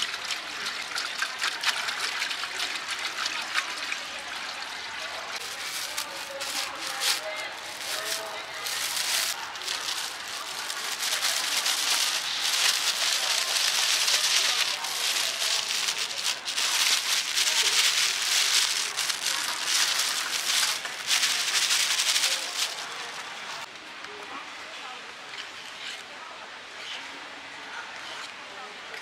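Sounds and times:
plastic sack crinkling: 0:05.4 - 0:23.7.

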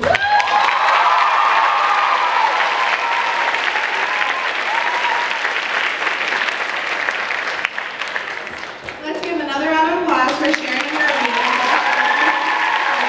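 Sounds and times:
audience applauding: 0:00.0 - 0:09.3, 0:10.3 - 0:13.0.

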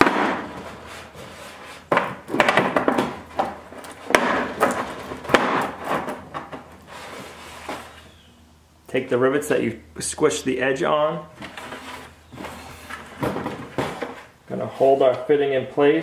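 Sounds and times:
sharp knocks: 0:00.0 - 0:00.6, 0:01.9 - 0:06.6
plastic scraping against plastic: 0:11.4 - 0:15.2.

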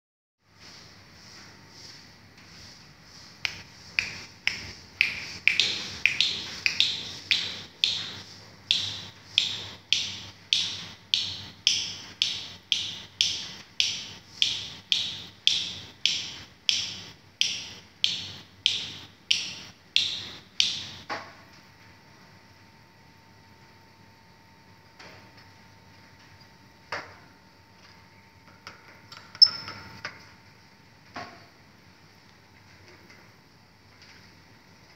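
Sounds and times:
fingers snapping: 0:03.4 - 0:21.0.

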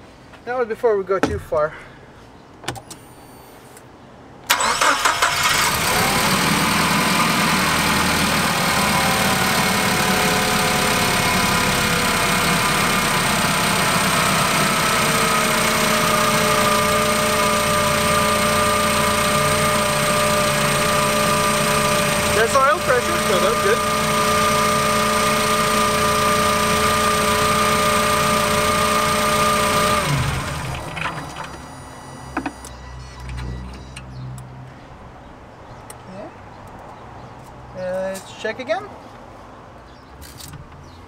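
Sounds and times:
forklift engine cranking and idling: 0:04.5 - 0:34.2.

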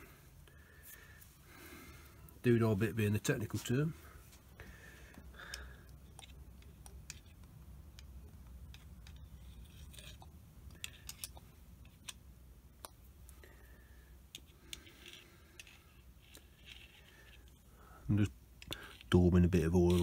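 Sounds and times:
low steady hum: 0:00.0 - 0:20.0
metal parts clicking and tapping: 0:05.5 - 0:12.2, 0:18.6 - 0:19.2.

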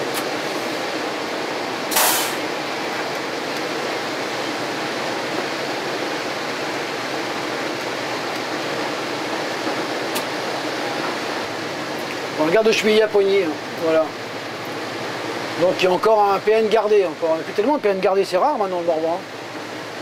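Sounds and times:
train running at speed: 0:00.0 - 0:17.5, 0:18.4 - 0:20.0
short loud hiss: 0:01.9 - 0:02.5.

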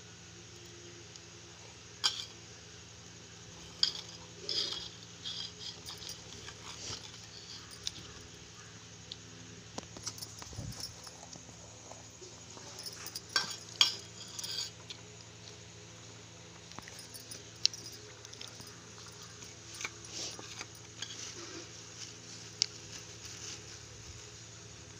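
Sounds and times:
steady low hum: 0:00.0 - 0:24.9
metal spoon clinking on a bowl: 0:12.7 - 0:14.8.

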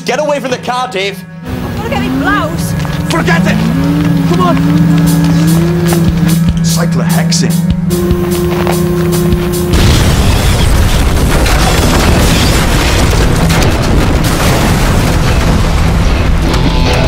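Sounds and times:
car explosion blast: 0:09.7 - 0:17.0.

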